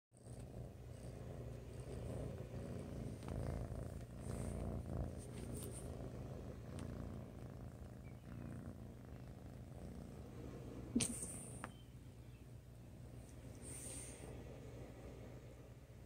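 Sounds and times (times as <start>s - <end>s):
kitten purring: 0.1s - 11.8s
light clicks and rubs: 5.1s - 5.9s.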